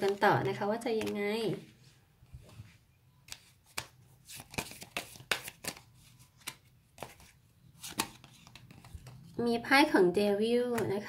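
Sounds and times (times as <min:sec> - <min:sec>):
cards shuffling and snapping: 0:00.0 - 0:01.2, 0:03.3 - 0:09.3.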